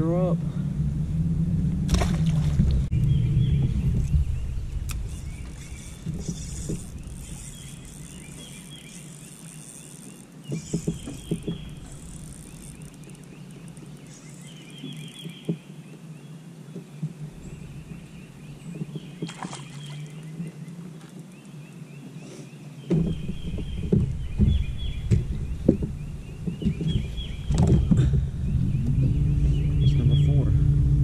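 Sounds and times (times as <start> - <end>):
birds chirping: 2.0 - 31.0
soft knocks: 22.9 - 28.2.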